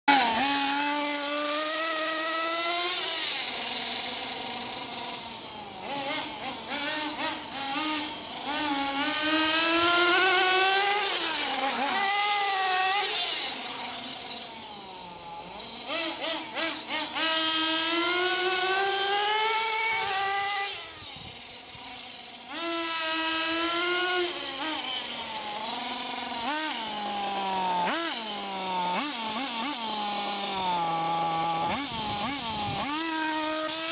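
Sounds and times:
model car engine revving: 0.1s - 33.9s.

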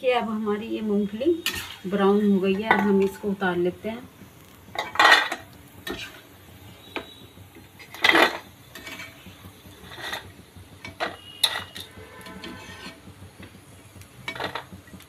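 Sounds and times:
metal ladle scraping a pan: 1.4s - 2.0s, 4.8s - 6.2s, 9.8s - 10.3s, 10.9s - 13.1s.

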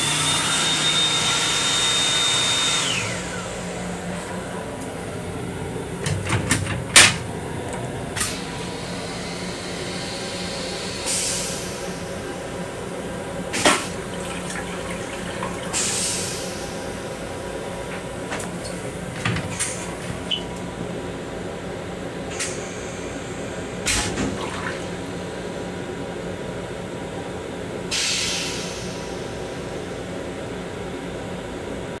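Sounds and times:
rail car hum: 2.8s - 23.9s, 24.8s - 32.0s
toilet flush click: 13.5s - 16.5s, 23.8s - 25.0s.

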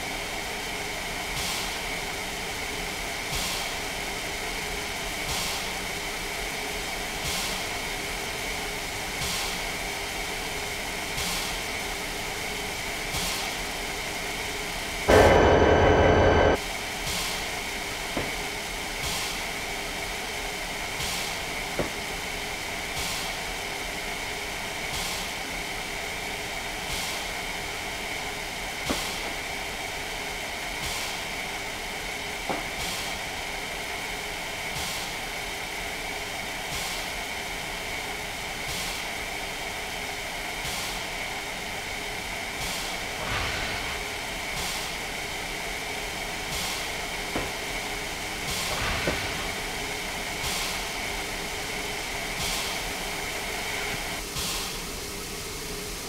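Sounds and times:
train running with hiss: 0.0s - 56.0s.

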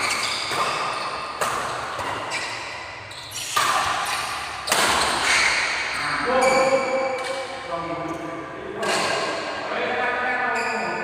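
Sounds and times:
rackets hitting shuttlecock: 0.0s - 7.7s, 8.8s - 9.6s.

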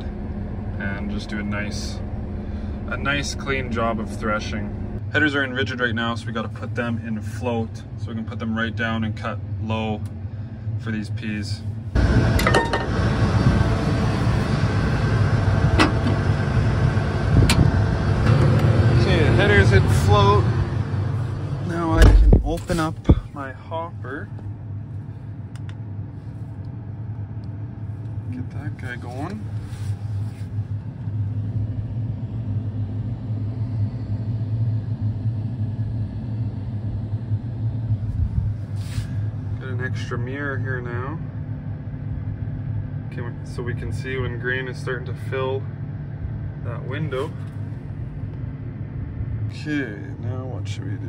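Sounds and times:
combine harvester running: 0.0s - 51.0s.

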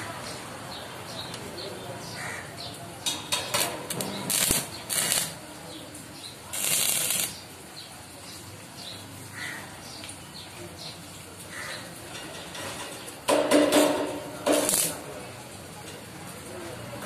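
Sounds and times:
welding arc crackling: 3.0s - 7.7s, 13.1s - 15.2s.

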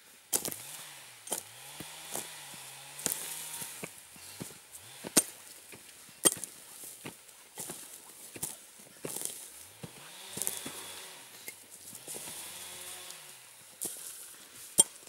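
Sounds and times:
hoe chopping into soil: 0.3s - 5.6s, 6.2s - 6.6s, 9.1s - 11.2s.

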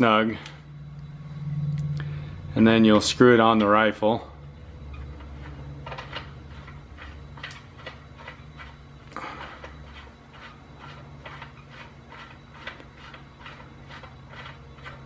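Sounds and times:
low hum: 0.0s - 15.0s
metal scrape: 4.7s - 15.0s.

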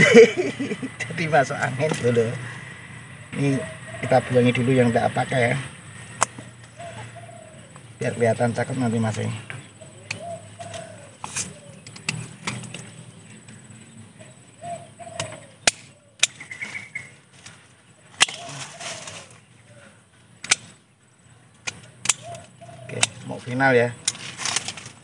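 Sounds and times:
dove cooing: 0.2s - 17.2s, 17.9s - 20.4s, 21.2s - 24.9s
pruning shears clicking: 10.0s - 13.6s, 15.2s - 17.6s, 18.2s - 19.4s, 20.4s - 20.8s, 21.5s - 25.0s.

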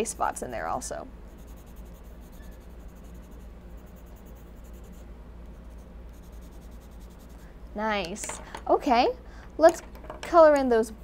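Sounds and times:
pencil scratching on paper: 0.0s - 7.4s
steady low hum: 0.0s - 11.0s.

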